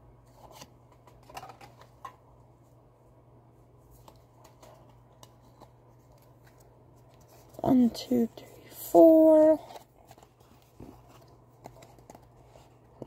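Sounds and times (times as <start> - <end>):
cards and pack rustling: 0.3 - 2.2, 3.9 - 8.3, 9.0 - 13.0.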